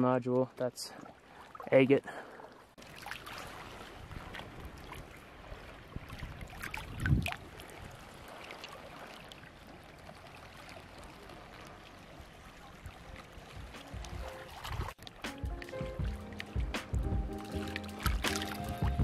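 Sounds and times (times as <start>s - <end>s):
water lapping over pebbles: 0.9s - 19.0s.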